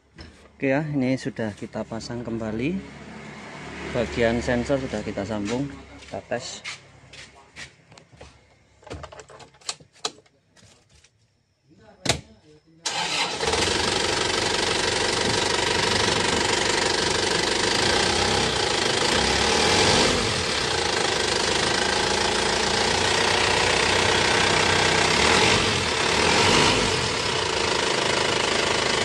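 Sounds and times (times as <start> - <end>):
diesel truck engine idling: 12.9 - 19.7.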